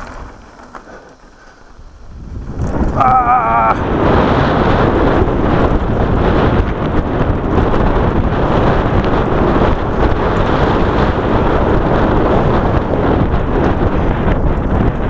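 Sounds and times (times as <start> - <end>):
wind roaring over microphone: 0.0 - 15.0.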